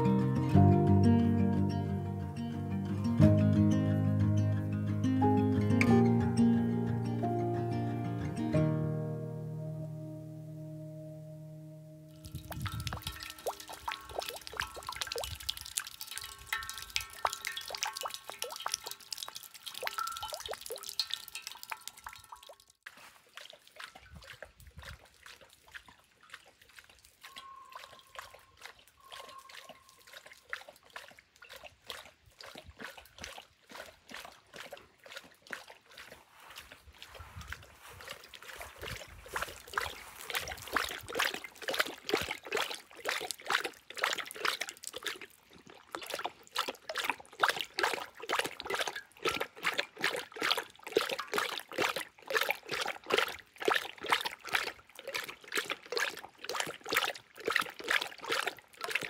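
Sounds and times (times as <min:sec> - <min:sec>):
dog lapping water: 0:12.2 - 0:59.0.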